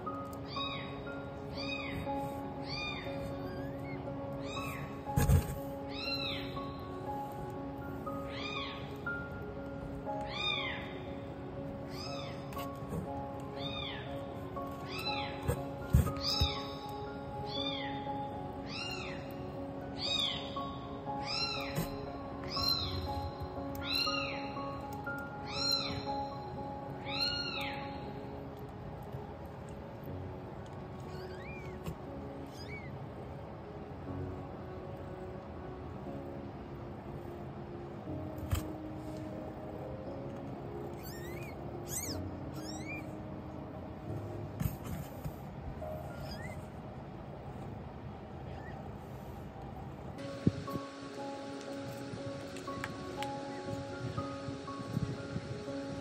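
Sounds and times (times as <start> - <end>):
newborn kittens mewing: 1.6 - 6.5, 14.9 - 16.8, 31.0 - 32.9, 40.9 - 43.2, 46.0 - 46.8
kitten mewing: 32.5 - 32.9, 41.0 - 43.1, 46.1 - 46.6.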